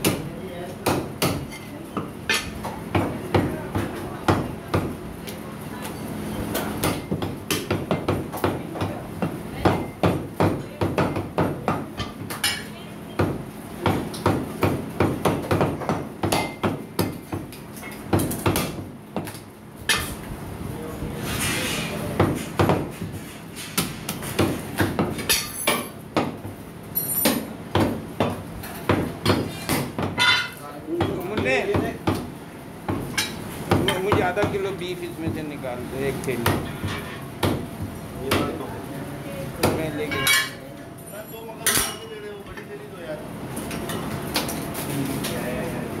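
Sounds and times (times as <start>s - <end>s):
cleaver chopping meat: 6.8s - 12.4s, 13.2s - 19.4s, 27.3s - 30.2s.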